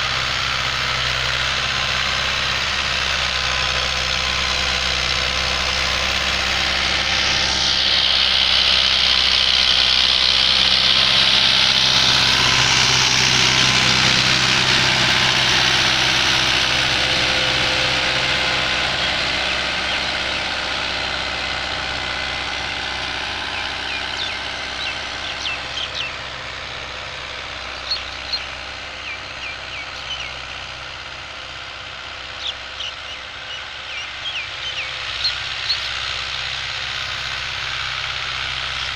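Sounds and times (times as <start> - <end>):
tractor diesel engine running: 0.0 - 38.9
high bird chirps: 23.5 - 26.2, 27.7 - 30.4, 32.4 - 35.9.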